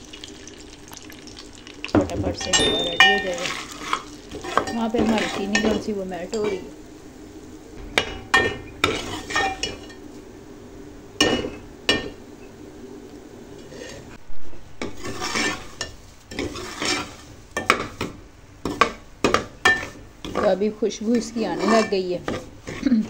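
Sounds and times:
metal ladle scraping a pot: 7.8 - 10.0, 14.8 - 17.9, 21.1 - 23.0.

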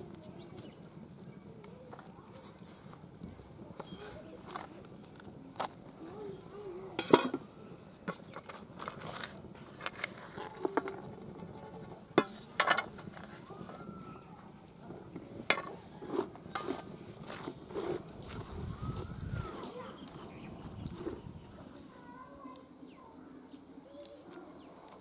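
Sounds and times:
steel plates clinking and scraping: 7.0 - 7.4, 12.2 - 13.4, 15.4 - 18.0.

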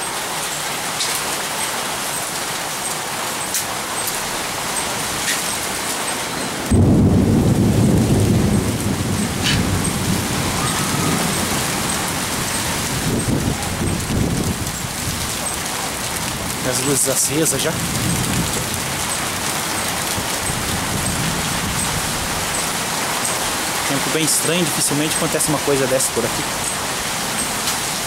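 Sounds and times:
steady rain: 0.0 - 28.0
thunder rumble: 6.5 - 15.4, 17.5 - 22.6.

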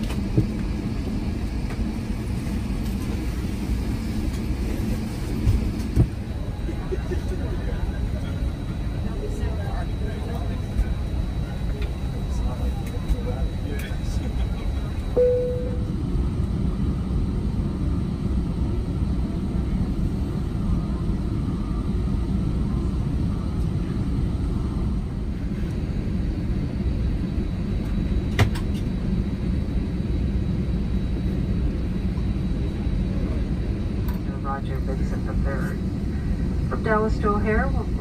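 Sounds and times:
airplane cabin rumble: 0.0 - 38.0
brief tone: 15.1 - 16.0.

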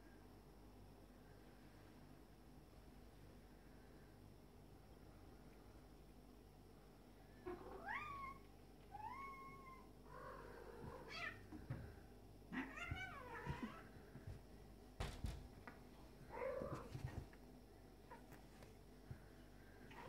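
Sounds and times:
cats yowling: 7.5 - 11.4, 12.5 - 13.9
soft thumps of grappling cats: 15.0 - 15.7.

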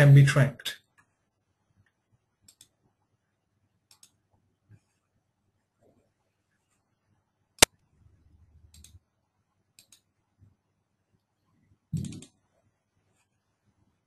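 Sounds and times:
computer mouse clicks: 1.8 - 2.8, 3.9 - 4.2, 8.7 - 9.0, 9.8 - 10.1, 12.0 - 12.4.

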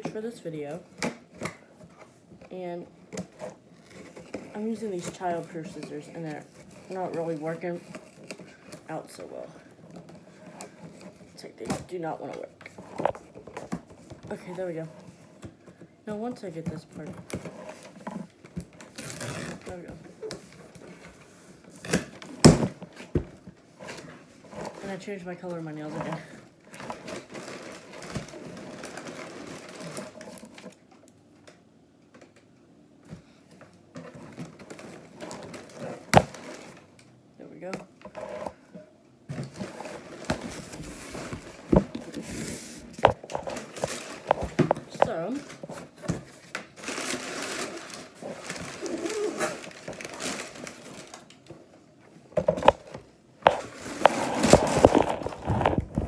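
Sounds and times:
cardboard rustling: 16.8 - 30.9, 39.4 - 51.7, 52.4 - 56.0.

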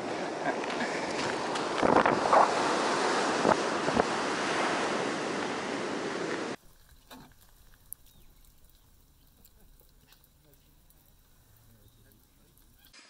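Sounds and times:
surf breaking on beach: 0.0 - 6.6
wind buffeting microphone: 0.6 - 6.9.

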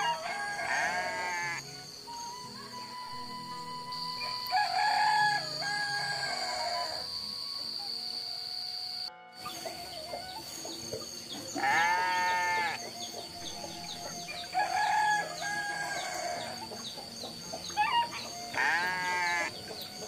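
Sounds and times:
roosters crowing: 0.0 - 1.7, 4.2 - 7.2, 11.4 - 17.0, 17.6 - 20.0
faint chirps: 0.0 - 20.0.

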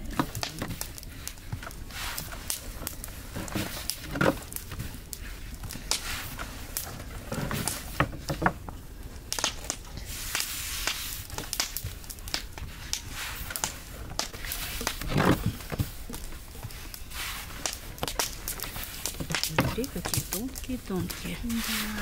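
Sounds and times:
hands sliding on dough: 0.7 - 8.0, 10.0 - 11.7, 12.3 - 19.6, 21.0 - 22.0.

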